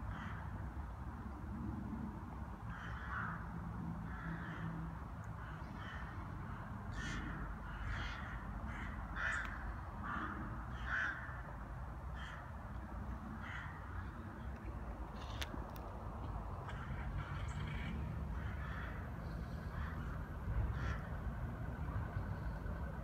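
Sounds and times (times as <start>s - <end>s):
low steady background rumble: 0.0s - 23.0s
rooks cawing: 0.1s - 0.5s, 2.7s - 14.5s, 16.5s - 22.6s.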